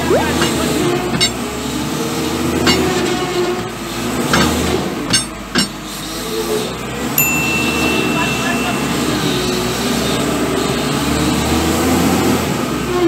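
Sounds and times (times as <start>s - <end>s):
sharp ringing metal clanks: 7.2s - 10.4s.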